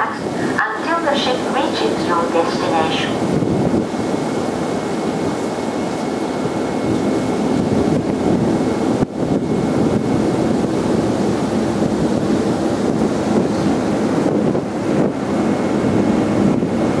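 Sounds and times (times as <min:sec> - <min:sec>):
rushing water: 0:00.0 - 0:17.0
ship engine noise: 0:00.0 - 0:17.0
wind buffeting microphone: 0:00.0 - 0:17.0.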